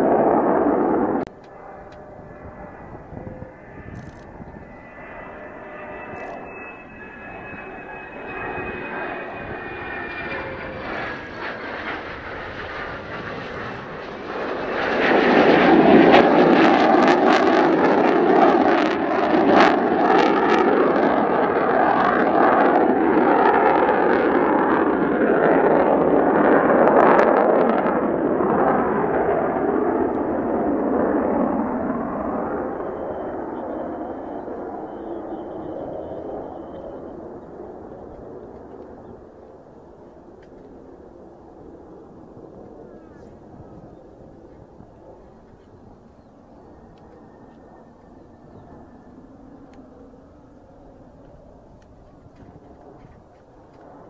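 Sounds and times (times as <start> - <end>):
jet engine roar: 0.0 - 54.0
jet engine whine: 0.0 - 54.0.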